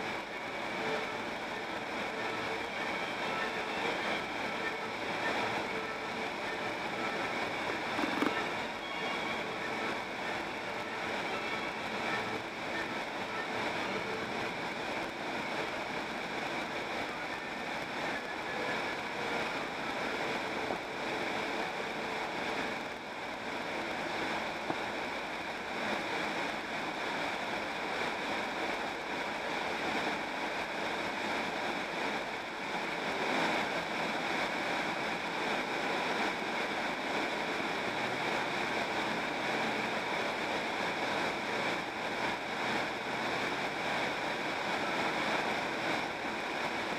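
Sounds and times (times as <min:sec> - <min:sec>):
tyre and wind noise inside car: 0:07.9 - 0:08.5.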